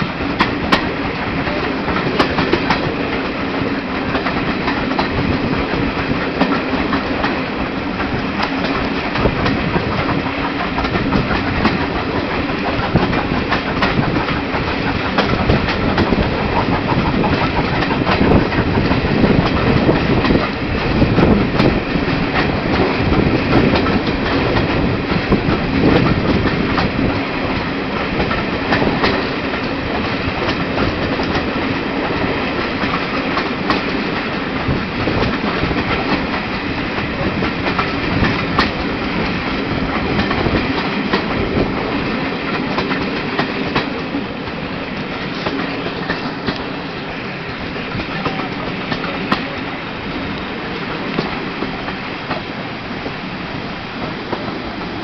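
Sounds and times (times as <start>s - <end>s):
train wheels clickety-clacking: 0.0s - 55.0s.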